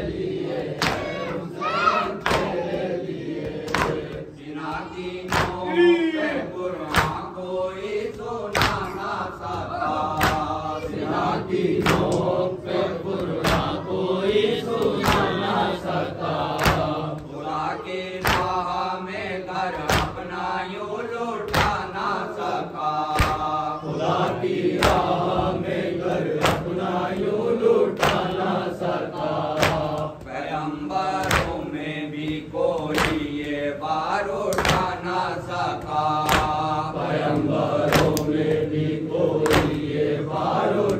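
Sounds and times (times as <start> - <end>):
chorus of men's voices: 0.0 - 40.9
rhythmic chest-beating slaps: 0.0 - 40.9
man chanting a lament: 4.4 - 11.0.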